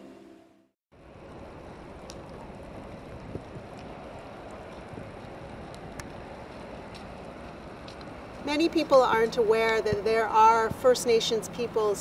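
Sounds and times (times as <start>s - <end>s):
wind-like hiss: 1.0s - 8.8s.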